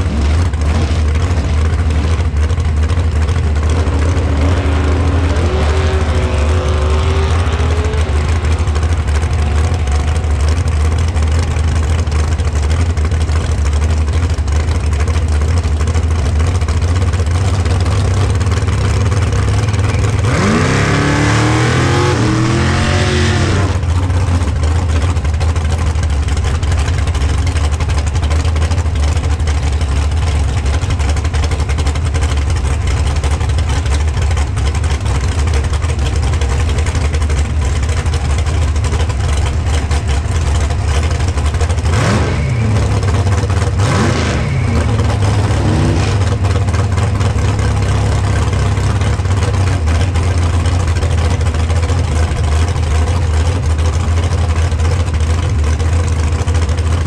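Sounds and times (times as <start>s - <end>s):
engine revving: 0.0s - 13.6s, 16.6s - 25.0s, 37.8s - 52.4s
race car engine idling: 0.0s - 57.0s.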